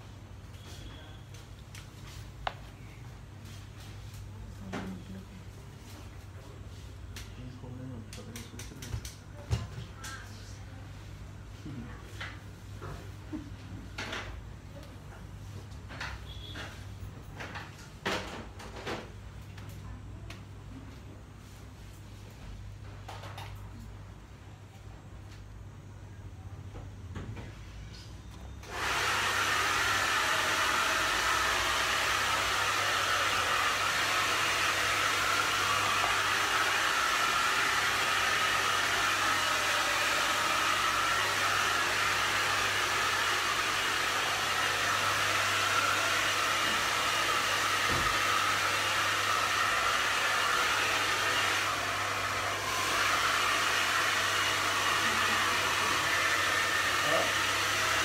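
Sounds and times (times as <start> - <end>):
hair dryer running: 28.6 - 58.0.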